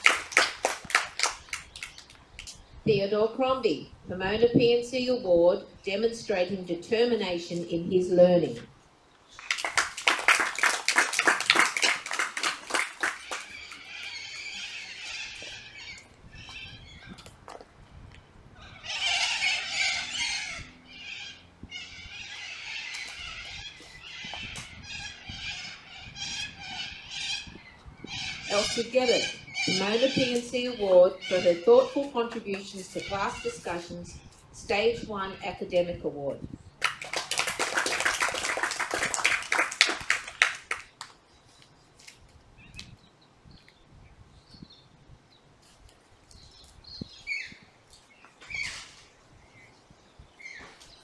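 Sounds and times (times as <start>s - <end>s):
children clapping: 0.0s - 2.5s, 9.4s - 14.6s, 36.8s - 41.2s
birds making harsh calls: 0.0s - 2.8s, 9.2s - 17.6s, 18.6s - 35.6s, 46.3s - 51.0s.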